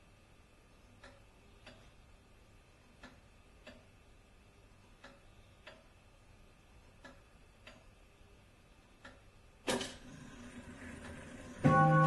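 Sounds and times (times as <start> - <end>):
clock ticking faintly: 0.9 - 2.1, 2.9 - 4.0, 4.8 - 6.0, 6.8 - 8.1, 8.9 - 9.4.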